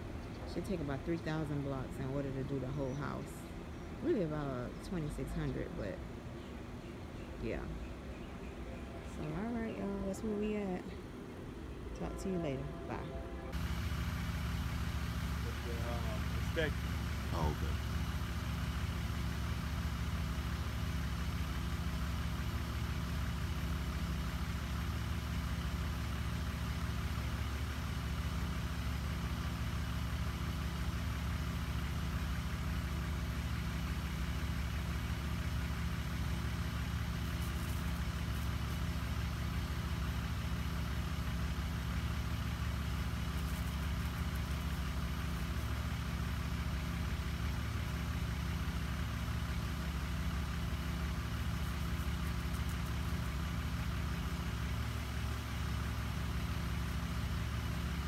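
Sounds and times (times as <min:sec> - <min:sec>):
sprayer engine idling: 0:13.5 - 0:58.0.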